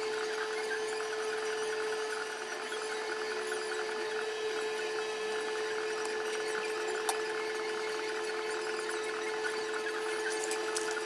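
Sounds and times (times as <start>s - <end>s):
machine hum: 0.0s - 11.0s.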